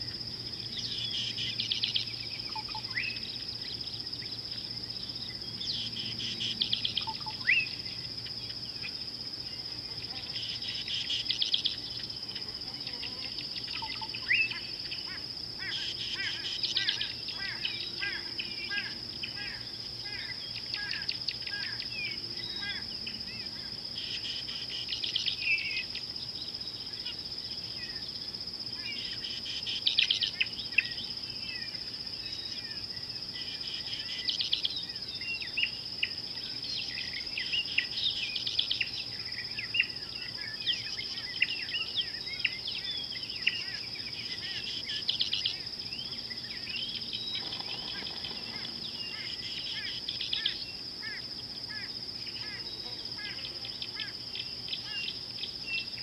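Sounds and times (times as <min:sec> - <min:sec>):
high-pitched insect drone: 0:00.0 - 0:56.0
birds chirping: 0:36.8 - 0:51.3.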